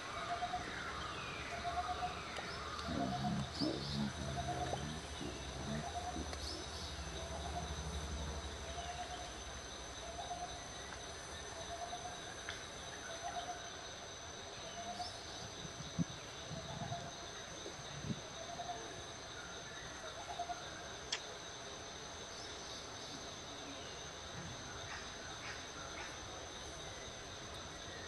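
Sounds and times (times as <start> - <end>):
high insect whine: 0.0 - 28.0.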